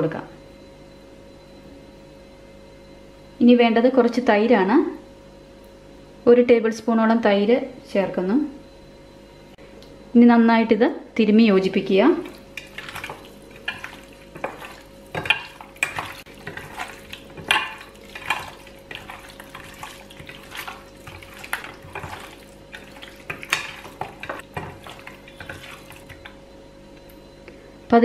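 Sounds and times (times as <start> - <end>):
wet squelching of hands kneading: 12.1 - 26.4.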